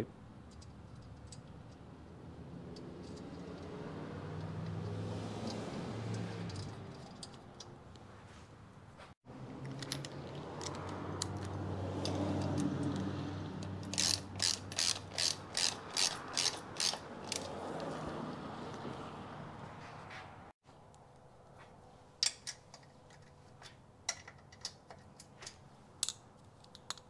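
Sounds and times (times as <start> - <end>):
ratchet wrench clicking: 2.7 - 3.8, 4.4 - 7.7, 13.6 - 17.5
light clicks of parts handled: 20.9 - 27.0.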